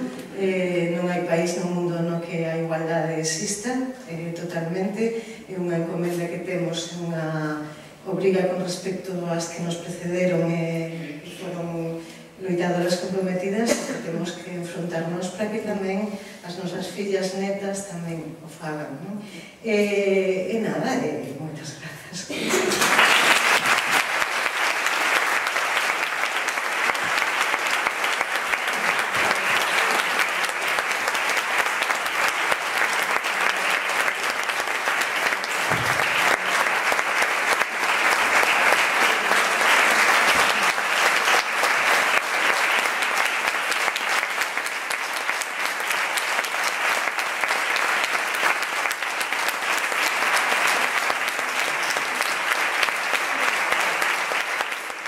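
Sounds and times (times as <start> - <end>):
audience applauding: 22.4 - 55.0.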